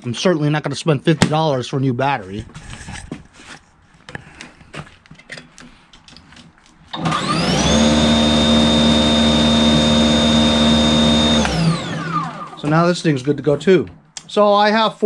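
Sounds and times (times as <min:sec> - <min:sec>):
electric motor whine: 0:07.0 - 0:12.6.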